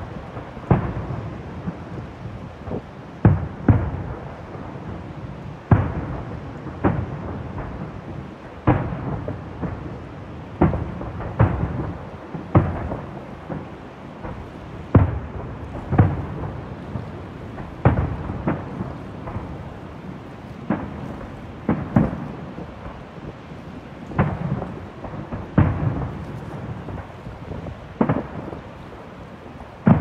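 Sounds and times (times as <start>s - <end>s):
distant fireworks booms: 0.0s - 30.0s
steady rushing noise: 0.0s - 30.0s.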